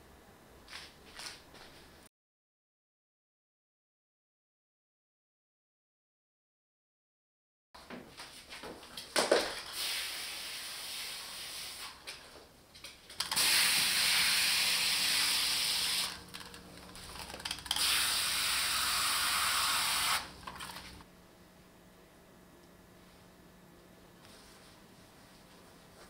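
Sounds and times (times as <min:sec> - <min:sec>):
hose nozzle spraying water: 0:13.3 - 0:21.0.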